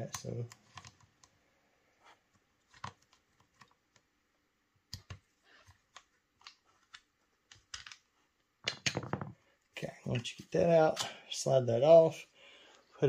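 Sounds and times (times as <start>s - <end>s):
small clicks of parts handled: 0.1s - 1.3s, 4.9s - 8.1s.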